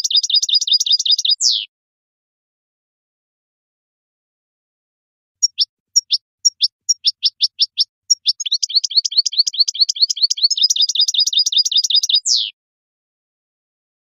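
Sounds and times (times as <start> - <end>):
goldfinch singing: 0.0 - 1.7, 5.4 - 12.5.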